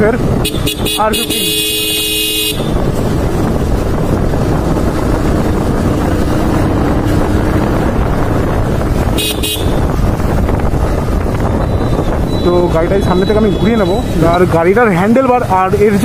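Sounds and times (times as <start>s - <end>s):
motorcycle engine drone: 0.0s - 16.0s
wind buffeting microphone: 0.0s - 16.0s
vehicle horn beeping: 0.4s - 2.9s, 9.1s - 9.9s, 11.6s - 14.0s.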